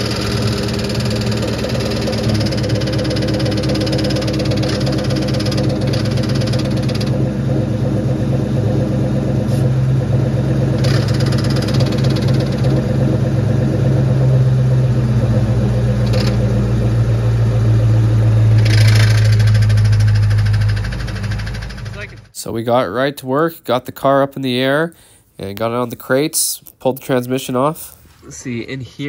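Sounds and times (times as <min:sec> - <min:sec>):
car engine idling: 0:00.0 - 0:22.4.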